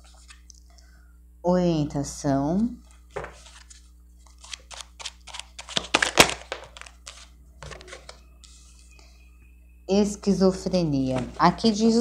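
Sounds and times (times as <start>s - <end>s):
cards shuffling and flicking: 3.1s - 8.7s.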